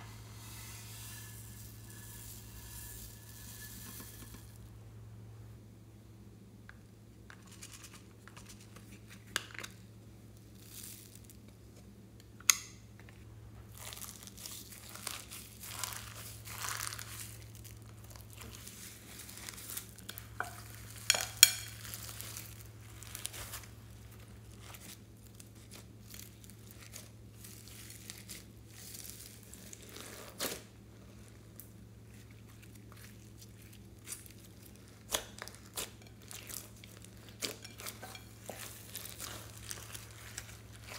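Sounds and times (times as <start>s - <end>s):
slime crackling and squelching: 13.7s - 40.9s.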